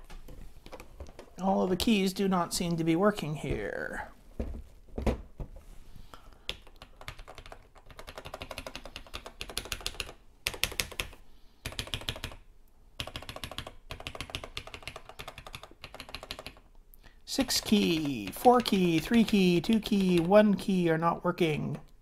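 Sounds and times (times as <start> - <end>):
computer keyboard keys clacking: 6.5 - 12.4, 13.0 - 16.7, 17.5 - 20.4.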